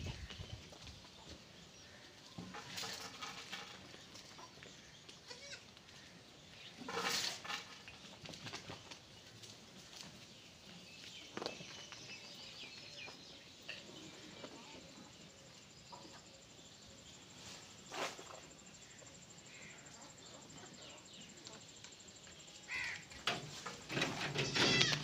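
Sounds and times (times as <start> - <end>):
goat bleating: 5.3 - 5.6, 24.4 - 25.0.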